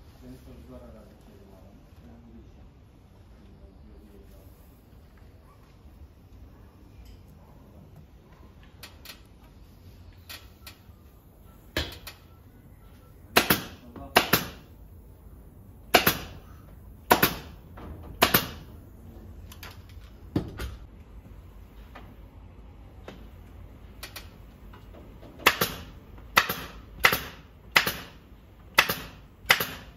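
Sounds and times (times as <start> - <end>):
staple gun firing: 18.2 - 18.7, 25.4 - 29.9.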